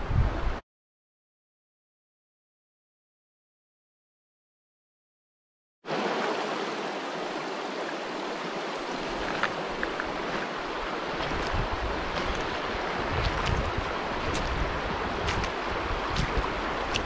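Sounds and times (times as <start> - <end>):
wind buffeting microphone: 0.0 - 0.6, 8.9 - 17.0
river rippling over stones: 5.9 - 17.0.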